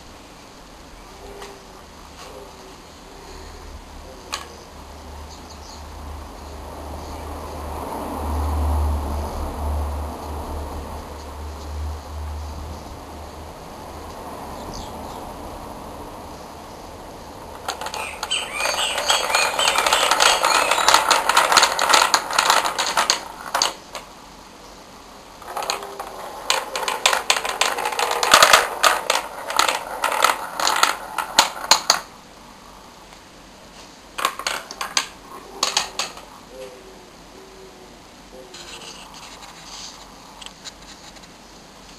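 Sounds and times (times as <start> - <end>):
wooden balls clattering down tracks: 17.4 - 24.1, 25.4 - 32.1, 34.2 - 36.3.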